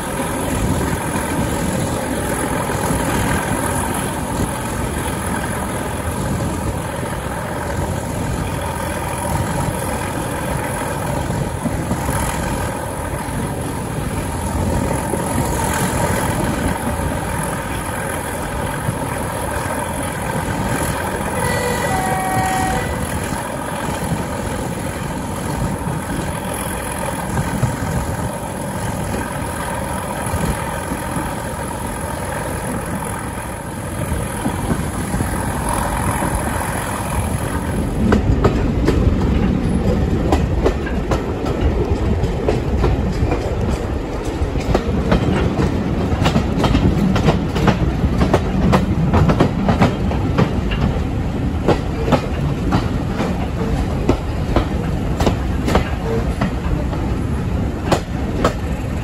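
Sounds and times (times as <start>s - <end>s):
diesel locomotive engine running: 0.0s - 59.0s
train wheels clattering over rail joints: 22.4s - 59.0s.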